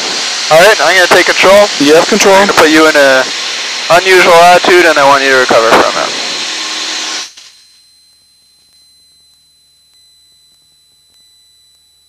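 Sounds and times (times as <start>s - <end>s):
faint high-pitched electronic whine: 7.3s - 12.0s.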